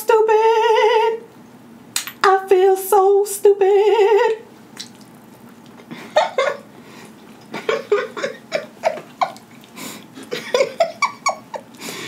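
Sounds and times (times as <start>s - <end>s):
woman laughing: 5.9s - 6.7s, 7.5s - 9.6s, 10.2s - 11.9s.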